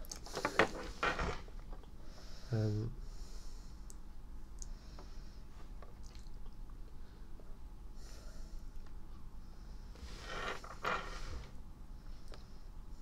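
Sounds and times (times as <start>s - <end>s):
soft breath: 2.0s - 3.9s, 6.9s - 8.8s.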